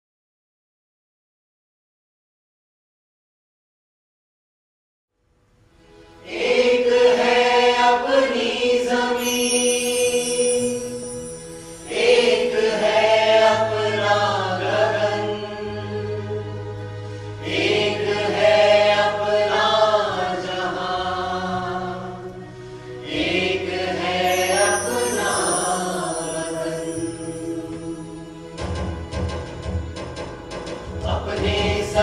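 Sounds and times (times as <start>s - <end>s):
person singing slow song: 9.2s - 12.8s, 24.2s - 28.4s.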